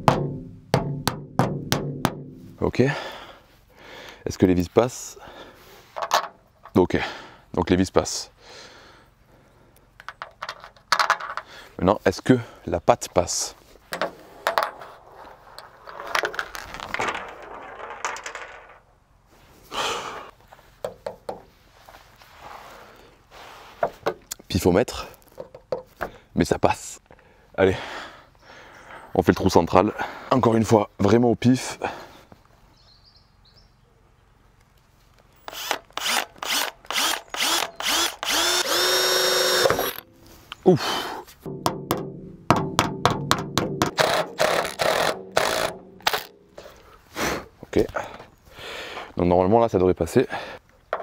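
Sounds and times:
power drill boring sheet metal: 35.5s - 40.0s, 44.0s - 46.3s.

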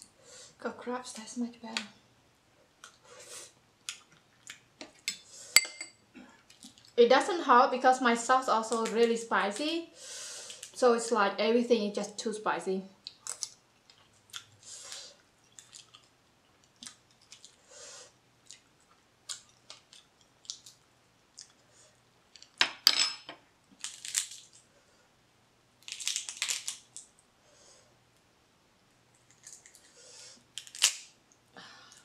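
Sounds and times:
crab shell clicks and crunches: 23.8s - 24.6s, 25.8s - 27.2s, 29.1s - 29.9s, 30.5s - 31.2s.

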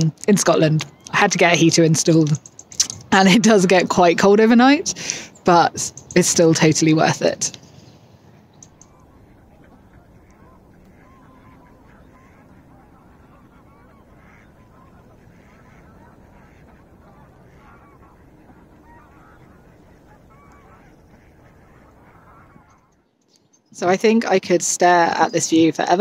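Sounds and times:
low background noise: 0.0s - 26.0s
flock of waterfowl calling: 4.0s - 23.1s.

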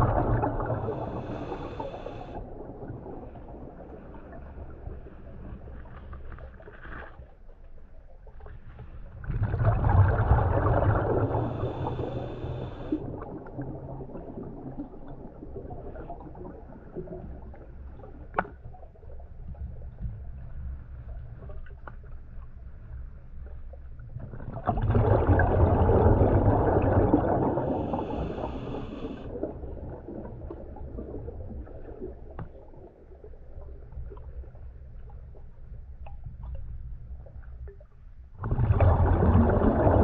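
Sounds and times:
diver exhaling bubbles: 0.0s - 3.9s, 9.2s - 17.1s, 24.4s - 32.2s, 38.4s - 40.0s
low underwater rumble: 0.0s - 40.0s.

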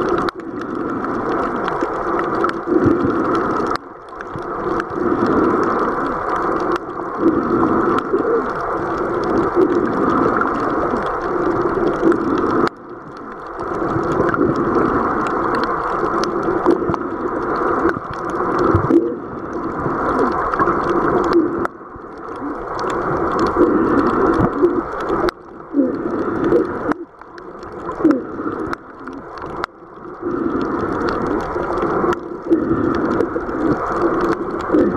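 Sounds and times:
underwater rushing and sloshing: 0.0s - 34.9s
water gurgles: 0.0s - 34.9s.

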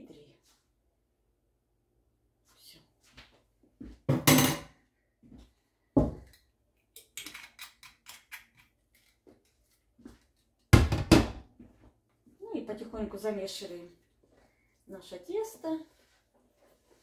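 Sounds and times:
kitchen clatter: 4.1s - 4.8s.

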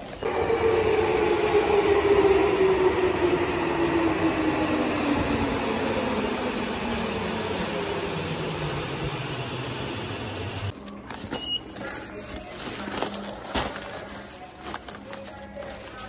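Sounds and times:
subway train running: 0.0s - 16.0s
plastic bag rustling: 10.7s - 16.0s
ticket gate beep: 11.3s - 11.8s.

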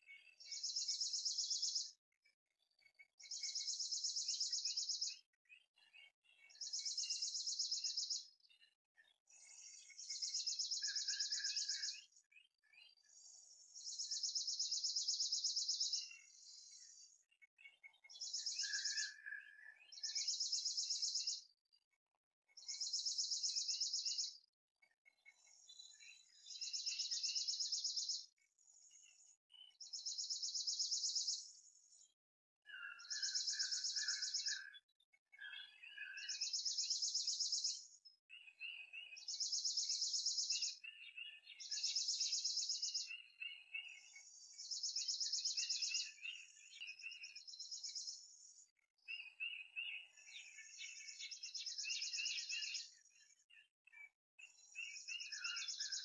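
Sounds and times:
bird chirps: 0.0s - 2.0s, 2.9s - 21.6s, 22.5s - 24.5s, 25.1s - 56.0s.

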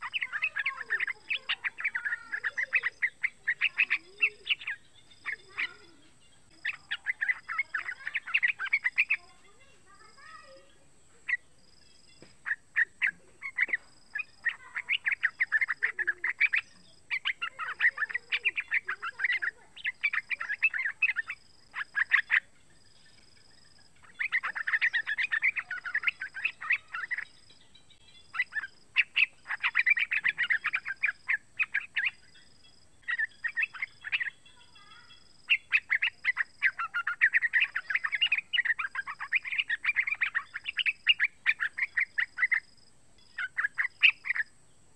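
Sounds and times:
bird chattering song: 0.0s - 44.9s.

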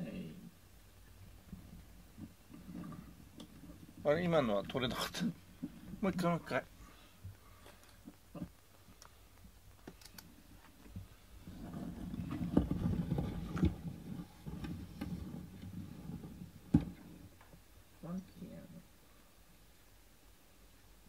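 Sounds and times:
sharp clicks: 9.8s - 10.3s.

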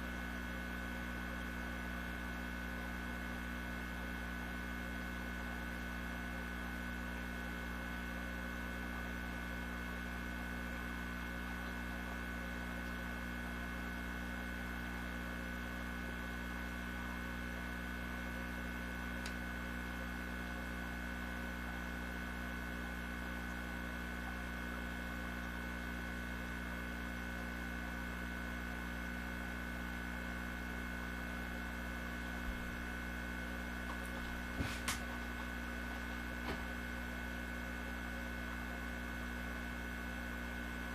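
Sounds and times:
electrical hum with high whine: 0.0s - 40.9s.

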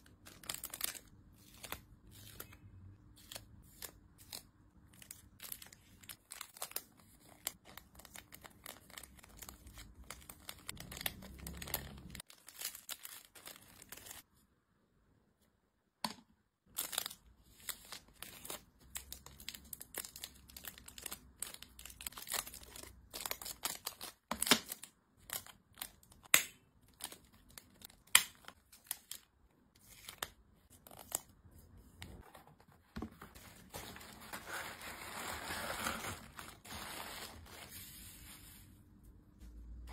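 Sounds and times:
plastic bags crinkling: 33.5s - 37.7s.

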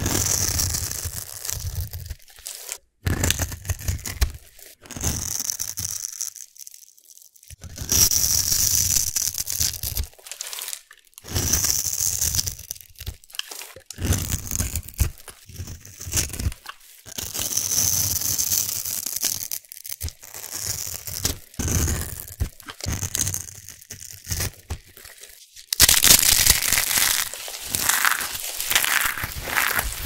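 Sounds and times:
knife scraping soap: 0.0s - 6.5s, 7.6s - 25.4s, 26.3s - 30.0s
soap crunching in hand: 0.0s - 30.0s.

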